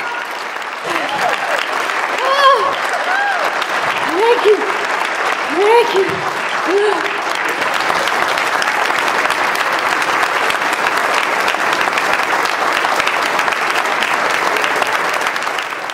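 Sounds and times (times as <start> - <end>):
audience applauding: 0.0 - 15.9.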